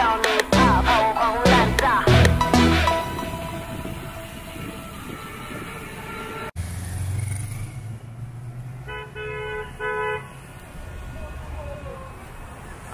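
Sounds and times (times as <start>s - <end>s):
background music: 0.0s - 6.5s
road traffic rumble: 0.0s - 12.9s
vehicle horn honking: 8.9s - 10.3s.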